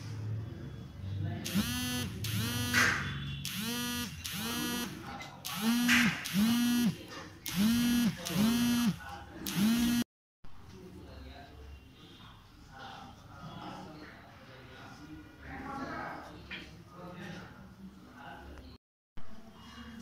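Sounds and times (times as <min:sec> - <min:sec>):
inverter buzzer beeping: 0:01.4 - 0:10.1.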